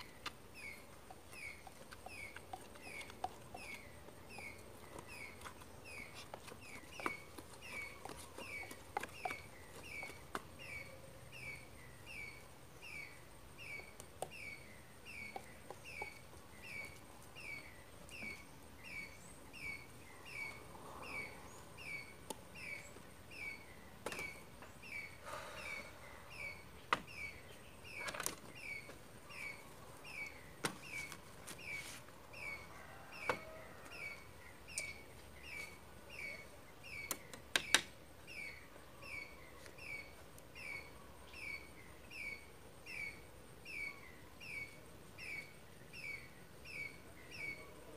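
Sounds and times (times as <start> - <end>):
bird chirping: 0.0 - 47.9.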